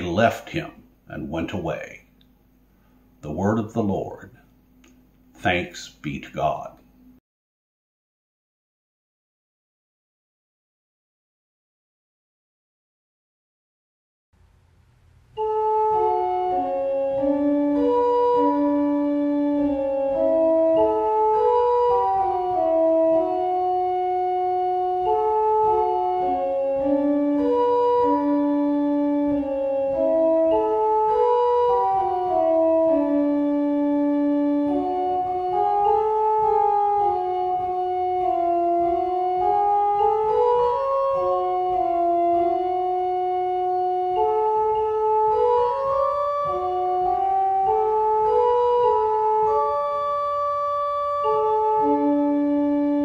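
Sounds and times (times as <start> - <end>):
organ playing slow melody: 0.0 - 7.2, 15.3 - 53.0.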